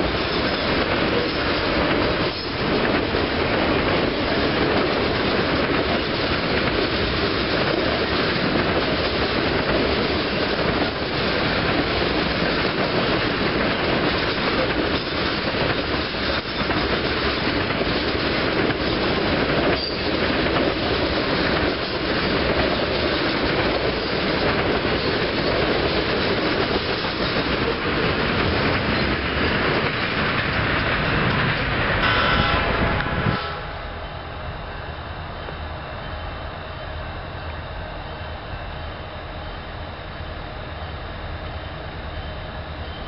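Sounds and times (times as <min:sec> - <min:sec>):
train wheels rolling on rail: 0:00.0 - 0:43.0
short high tone: 0:32.0 - 0:34.9.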